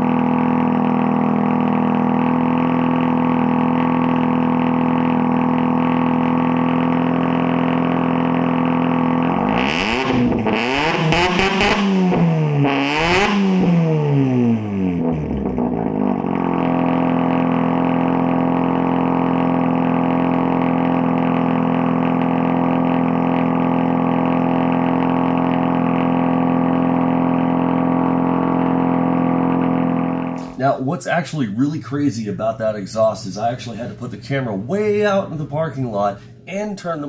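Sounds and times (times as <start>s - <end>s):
loud rotary engine revving and idling: 0.0s - 30.6s.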